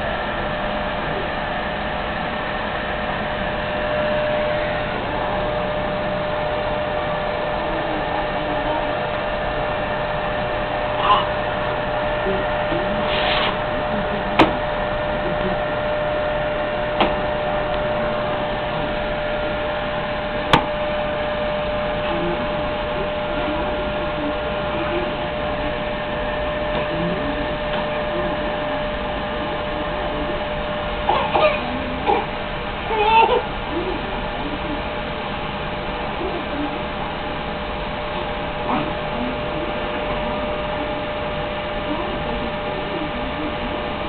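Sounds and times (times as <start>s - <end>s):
vacuum cleaner humming: 0.0s - 44.0s
toddler voices: 11.0s - 11.4s, 31.1s - 34.8s.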